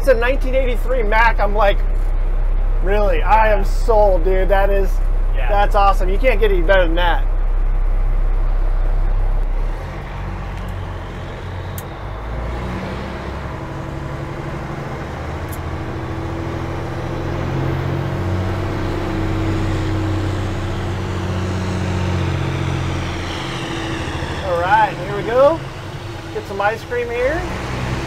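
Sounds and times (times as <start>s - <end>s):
diesel engine drone: 0.0s - 28.0s.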